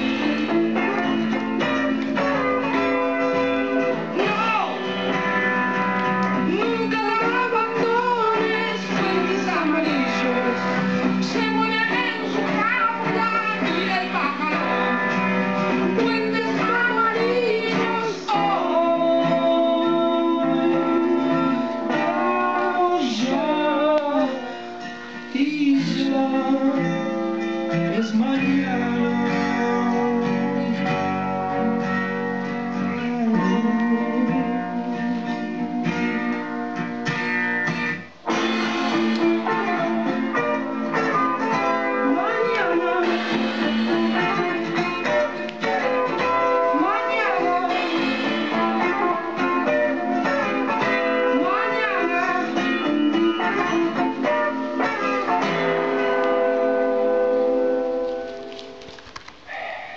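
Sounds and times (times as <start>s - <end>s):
guitar-led song: 0.0s - 59.9s
ringing guitar chord: 38.3s - 58.3s.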